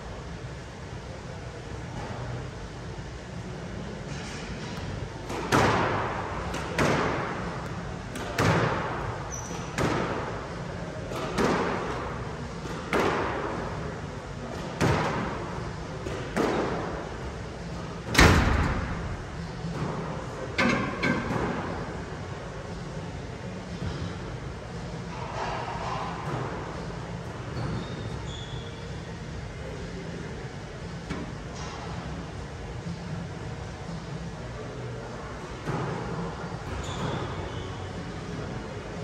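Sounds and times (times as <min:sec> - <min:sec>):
squash ball hitting racquets and walls: 0:04.1 - 0:22.7, 0:25.1 - 0:28.7, 0:35.4 - 0:38.4.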